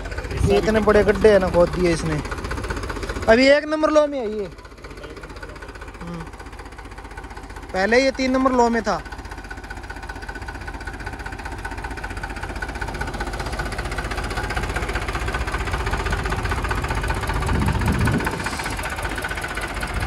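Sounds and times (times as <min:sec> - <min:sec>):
tractor diesel engine labouring: 0:00.0 - 0:20.0.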